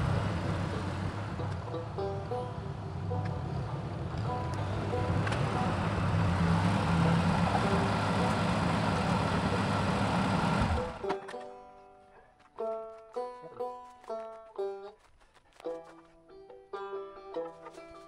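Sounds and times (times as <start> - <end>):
tractor engine running: 0.0 - 11.4
banjo music: 0.0 - 18.0.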